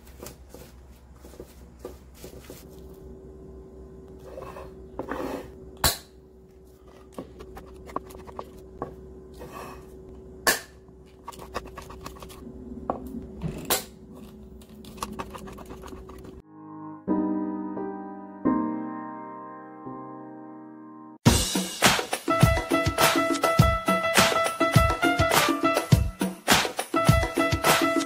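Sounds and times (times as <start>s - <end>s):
steady hum: 0.0s - 16.4s.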